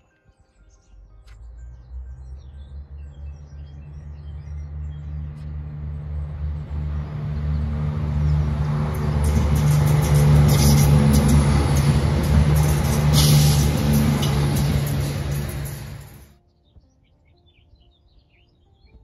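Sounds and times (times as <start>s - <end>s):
train engine drone: 1.8s - 16.3s
wheels clattering over rails: 7.5s - 16.3s.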